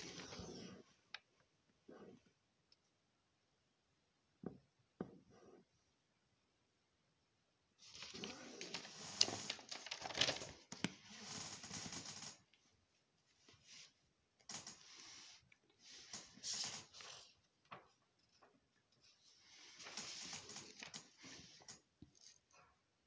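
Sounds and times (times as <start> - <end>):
magazine pages rustling: 7.8 - 11.8.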